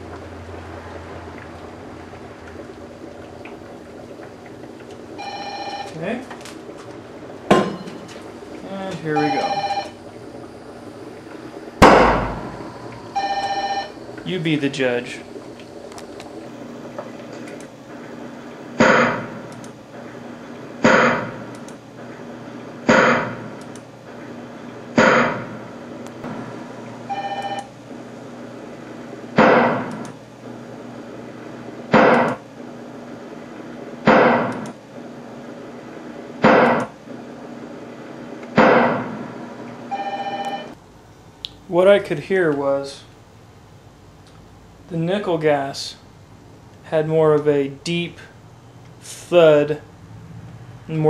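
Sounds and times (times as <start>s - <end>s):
gas explosion bangs: 11.8s - 13.2s, 29.4s - 29.9s, 38.5s - 39.2s.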